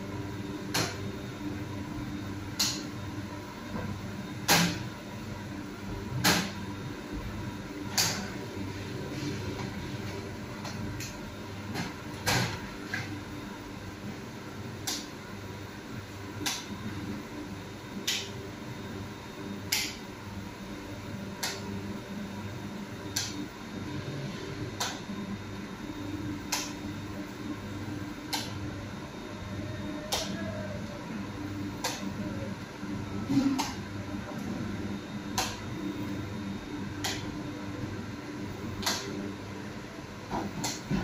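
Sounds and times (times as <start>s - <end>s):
bakery machinery hum: 0.0s - 41.0s.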